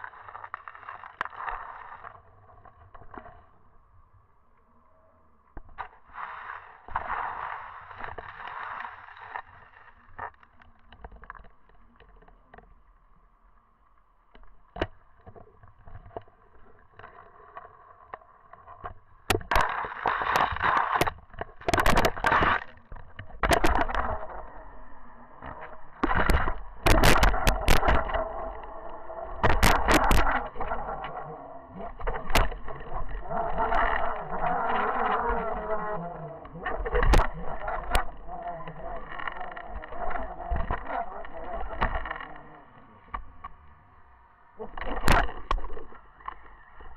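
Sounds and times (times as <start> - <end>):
faint clicks: 0.0 - 46.9
muffled underwater noise: 0.0 - 46.9
rushing water: 6.0 - 11.3, 19.3 - 43.3.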